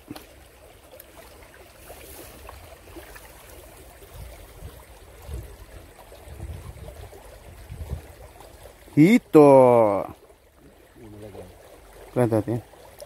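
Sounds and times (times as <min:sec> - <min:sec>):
river water trickling over rocks: 0:00.0 - 0:13.0.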